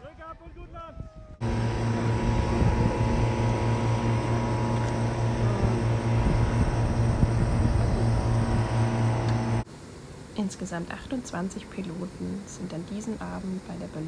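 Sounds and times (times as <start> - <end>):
propane burner blasting: 1.4 - 9.7.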